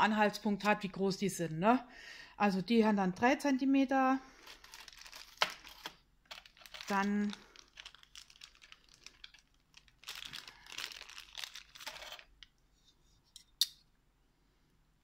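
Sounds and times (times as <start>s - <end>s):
plastic bags rustling: 4.4s - 12.5s.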